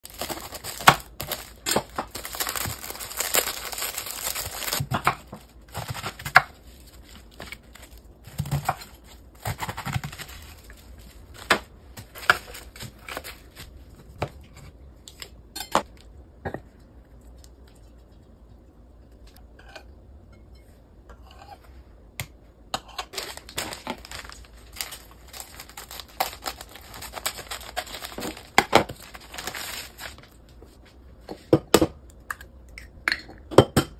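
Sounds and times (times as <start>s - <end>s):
knife slitting plastic bag: 0.0s - 13.8s, 23.1s - 30.2s.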